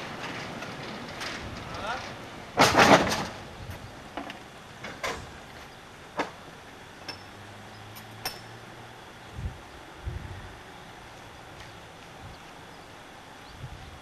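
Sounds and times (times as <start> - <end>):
metallic clanks and clinks: 7.0 - 7.4, 8.2 - 8.6.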